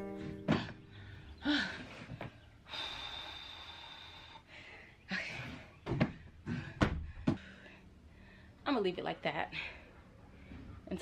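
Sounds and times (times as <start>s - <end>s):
knocks and thumps on van floor: 5.9s - 7.4s.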